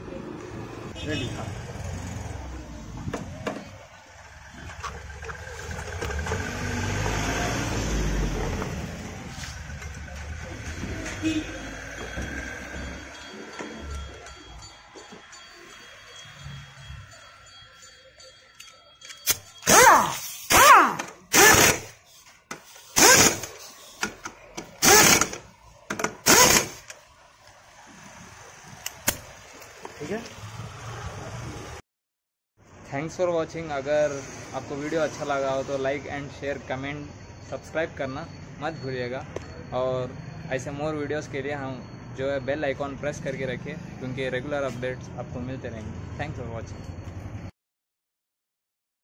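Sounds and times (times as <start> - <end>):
pneumatic impact wrench bursts: 19.2 - 27.0.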